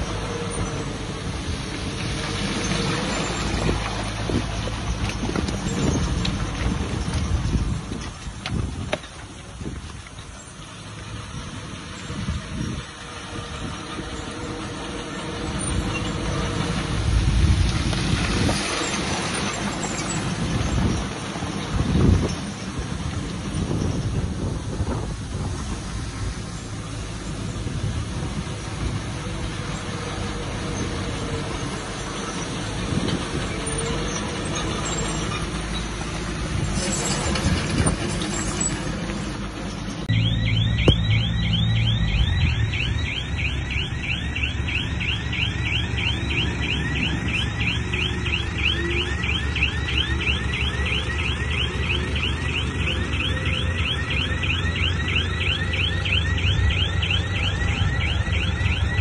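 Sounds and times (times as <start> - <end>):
heavy machinery engine rumble: 0.0 - 59.0
rapid rising chirps: 40.1 - 49.3.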